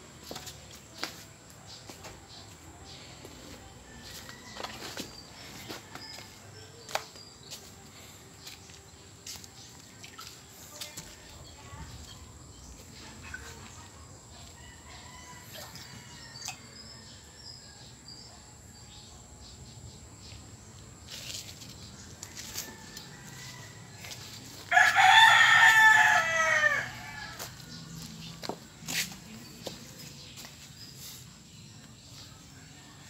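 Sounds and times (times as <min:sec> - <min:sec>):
rooster crowing: 0:22.4 - 0:27.5.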